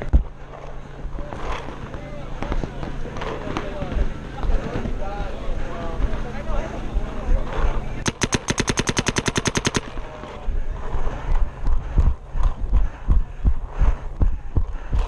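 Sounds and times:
paintball marker rapid shots: 0:08.0 - 0:10.1.

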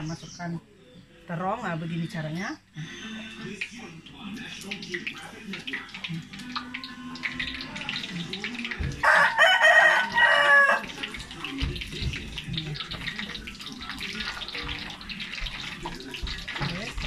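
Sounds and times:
vegetables sizzling in hot oil: 0:04.5 - 0:17.0
rooster crowing: 0:09.0 - 0:10.9.

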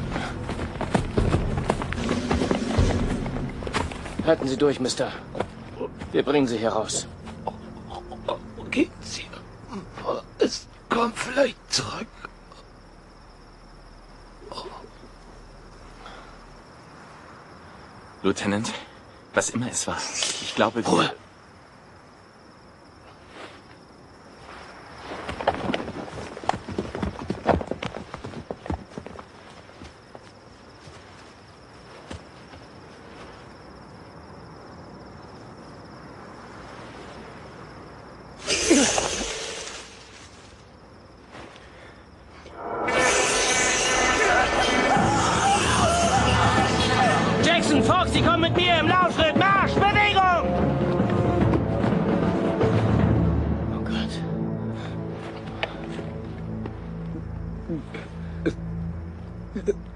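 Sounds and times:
crickets chirping: 0:00.0 - 0:59.9
loud rushing burst with falling tone: 0:42.5 - 0:45.6.

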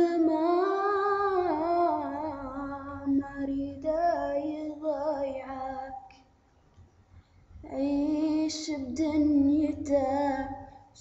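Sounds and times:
woman singing: 0:00.0 - 0:06.2, 0:07.6 - 0:11.0.

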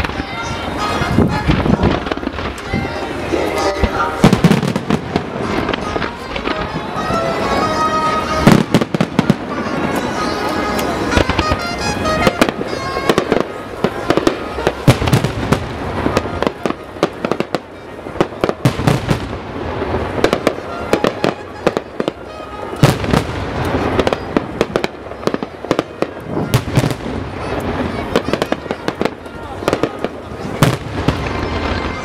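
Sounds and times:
music playing: 0:00.0 - 0:17.5, 0:20.0 - 0:25.8
fireworks bangs and crackles: 0:00.0 - 0:32.0.

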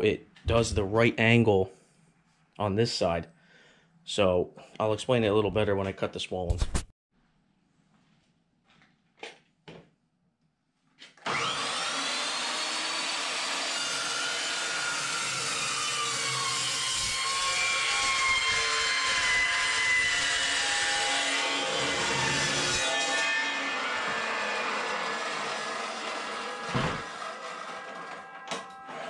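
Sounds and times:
chop saw cutting steel: 0:11.2 - 0:29.0.

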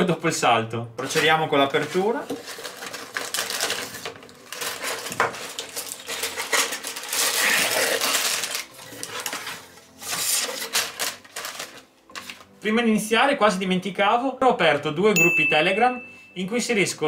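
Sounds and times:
plastic crinkling: 0:01.0 - 0:12.6
plastic pieces rattling in bags: 0:01.8 - 0:11.8.

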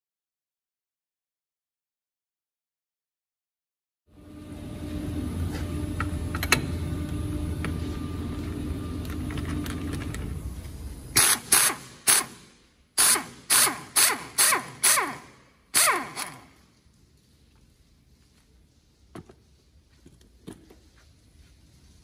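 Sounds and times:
mechanical hum: 0:04.1 - 0:22.0
impact wrench bursts: 0:11.1 - 0:16.6.

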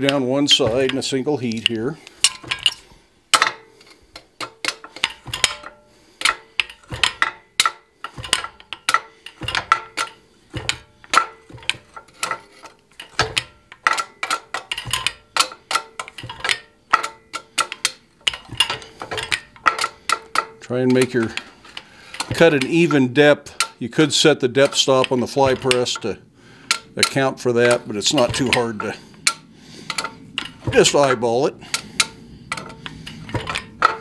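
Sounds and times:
fly press metallic clanks: 0:00.0 - 0:34.0.

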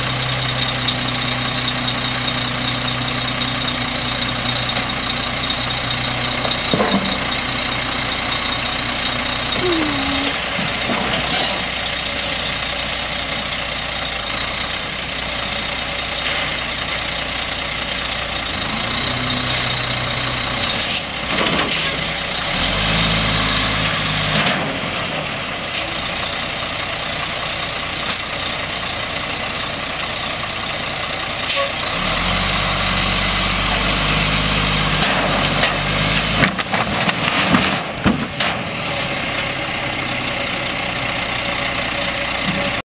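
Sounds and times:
diesel truck engine running: 0:24.4 - 0:42.8
lumber clattering to the ground: 0:36.4 - 0:38.6.

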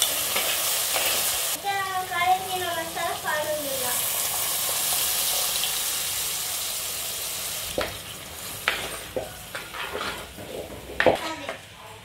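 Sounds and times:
hot oil sizzling: 0:00.0 - 0:11.2
ladle stirring in pot: 0:07.9 - 0:11.2.

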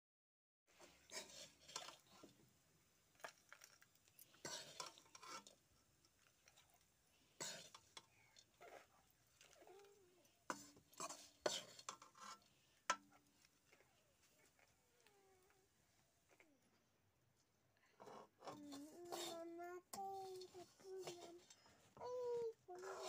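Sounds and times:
ladle scraping steel pan: 0:01.0 - 0:02.3, 0:04.4 - 0:05.6, 0:07.4 - 0:08.9, 0:10.5 - 0:13.2, 0:18.5 - 0:19.4.

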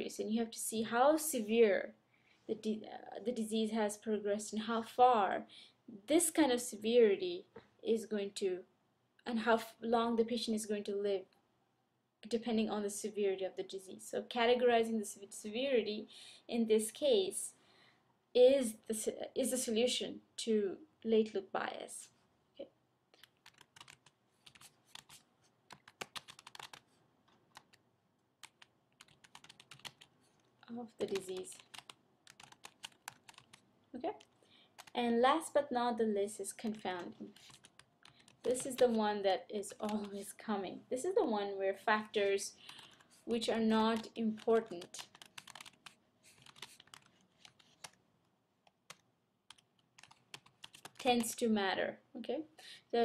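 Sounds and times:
typing on computer keyboard: 0:23.2 - 0:26.8, 0:27.5 - 0:27.8, 0:28.4 - 0:30.1, 0:31.0 - 0:33.6, 0:34.2 - 0:35.0, 0:36.7 - 0:39.0, 0:43.9 - 0:48.0, 0:48.8 - 0:51.4.

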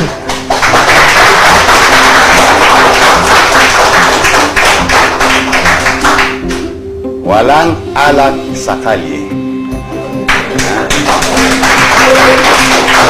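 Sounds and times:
crowd clapping and cheering: 0:00.0 - 0:06.8, 0:10.1 - 0:13.0
background music: 0:00.0 - 0:13.0.

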